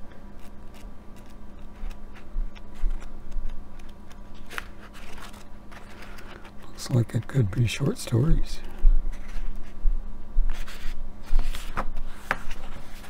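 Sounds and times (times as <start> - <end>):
steady low hum: 0.0 - 13.0
book pages rustling: 0.3 - 9.8, 10.5 - 13.0.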